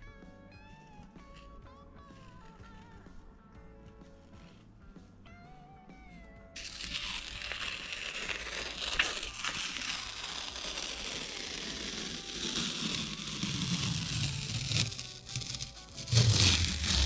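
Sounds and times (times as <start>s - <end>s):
masking tape tearing off: 6.6s - 17.0s.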